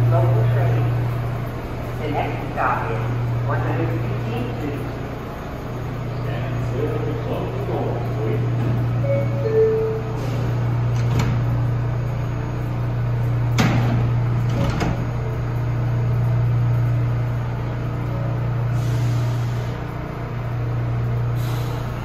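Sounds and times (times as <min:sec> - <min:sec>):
train low hum: 0:00.0 - 0:22.0
train door thuds: 0:13.6 - 0:15.1.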